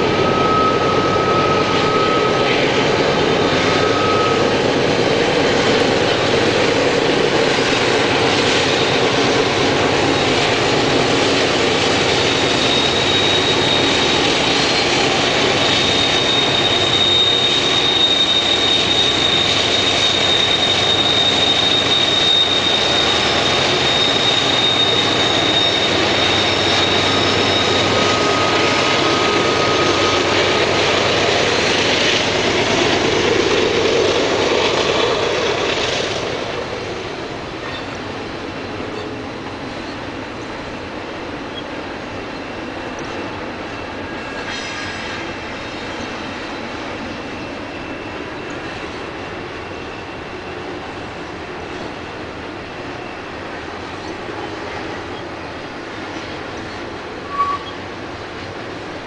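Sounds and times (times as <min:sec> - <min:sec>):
thin high whine: 0:00.0 - 0:05.4, 0:12.0 - 0:38.0
diesel locomotives passing: 0:00.0 - 0:59.0
train cars rolling: 0:00.0 - 0:59.0.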